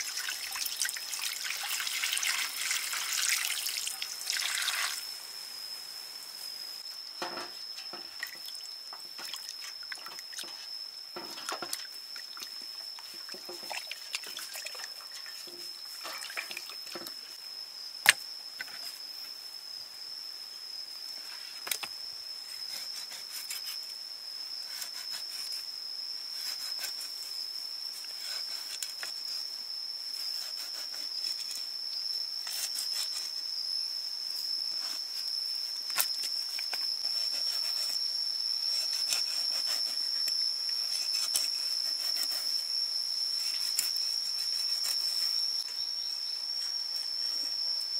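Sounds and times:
high insect drone: 0.0 - 47.9.

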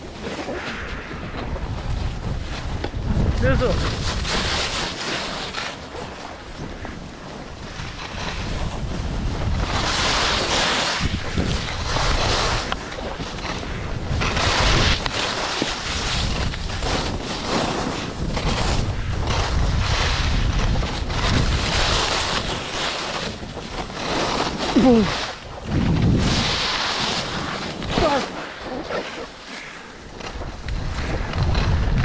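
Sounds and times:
skis scraping on packed snow: 0.0 - 32.0
wind rushing over microphone: 0.0 - 32.0.

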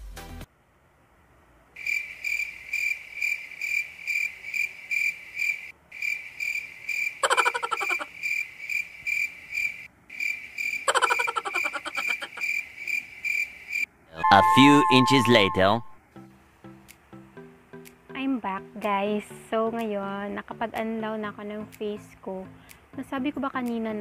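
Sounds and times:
crickets chirping: 1.8 - 13.9.

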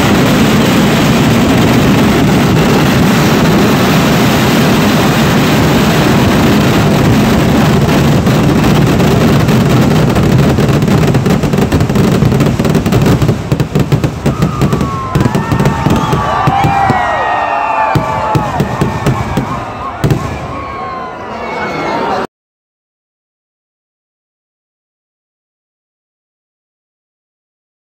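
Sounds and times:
fireworks whistles: 0.0 - 21.1
fireworks explosions: 0.0 - 21.3.

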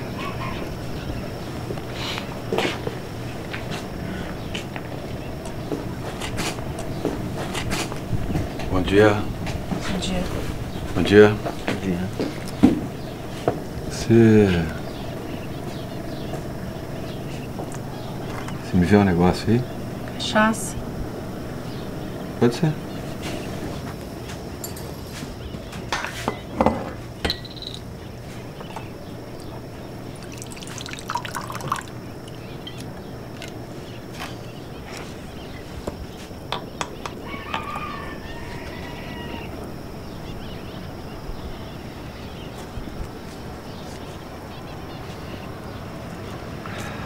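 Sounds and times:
glass clinking: 27.2 - 27.8, 30.2 - 31.9
liquid trickling: 30.1 - 32.8.

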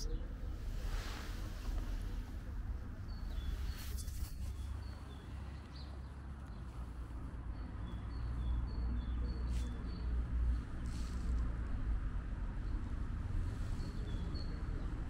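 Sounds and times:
steady low rumble: 0.0 - 8.4
brief rustle: 3.6 - 4.8.

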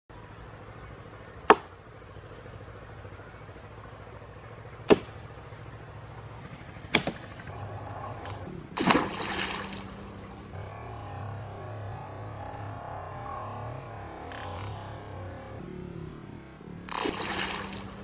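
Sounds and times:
insects droning: 0.1 - 18.0
sharp knocks: 1.5 - 1.7, 4.9 - 5.2, 6.9 - 7.5.

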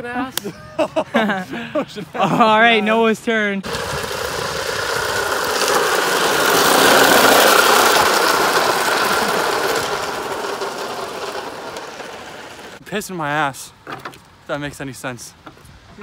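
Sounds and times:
plastic wheels rolling on wet asphalt: 3.6 - 12.8.

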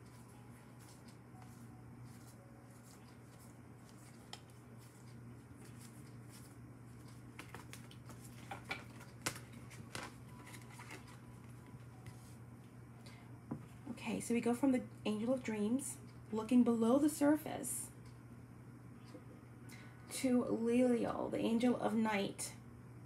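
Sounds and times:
paper clicks and rustles: 0.0 - 11.3.

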